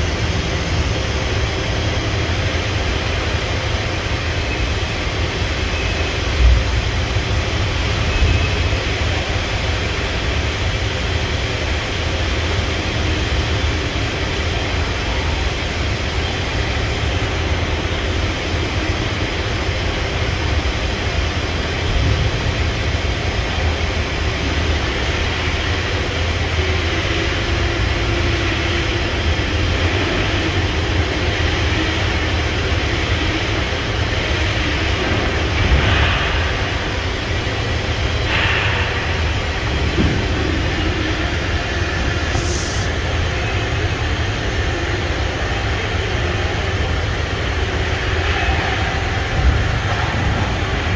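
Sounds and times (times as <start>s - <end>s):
machining center whirring: 0.0s - 50.9s.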